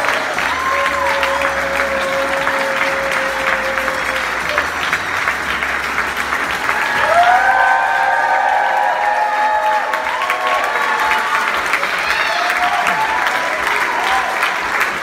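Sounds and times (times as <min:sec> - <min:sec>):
music holding a long note: 0:00.0 - 0:09.8
audience applauding: 0:00.0 - 0:15.0.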